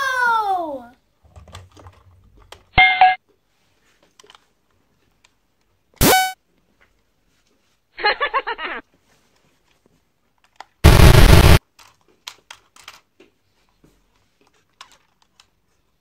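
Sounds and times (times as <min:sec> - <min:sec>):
electronic horn toot: 0:06.0 - 0:06.4.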